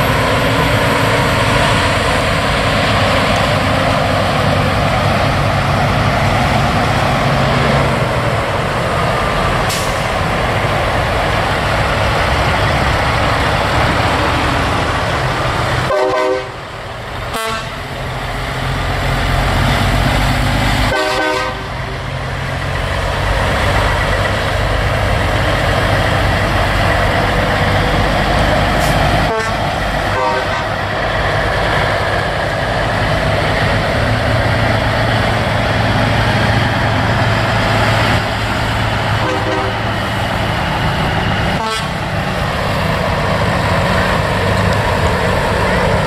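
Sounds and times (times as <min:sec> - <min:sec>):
diesel trucks driving past: 0:00.0 - 0:46.0
air horn blasts: 0:15.9 - 0:16.6, 0:17.3 - 0:17.8, 0:20.9 - 0:21.7, 0:29.3 - 0:30.7, 0:39.2 - 0:39.8, 0:41.6 - 0:42.0.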